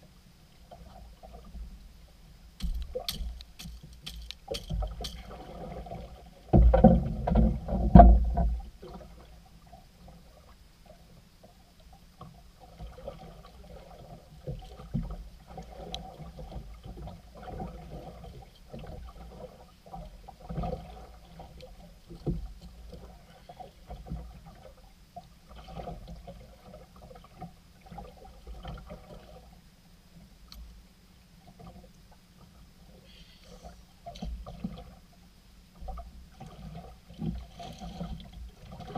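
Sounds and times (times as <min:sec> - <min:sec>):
wooden club thumping fish: 0:02.6 - 0:05.3, 0:06.6 - 0:08.6
knocks and clatter on boat: 0:02.6 - 0:08.7, 0:22.1 - 0:23.0.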